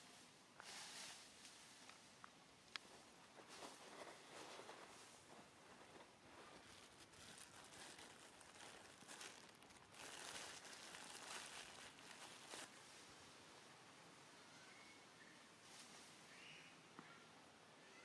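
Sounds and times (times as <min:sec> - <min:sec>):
soft rustling and crackling: 0:00.0 - 0:13.3
faint hiss: 0:00.0 - 0:18.0.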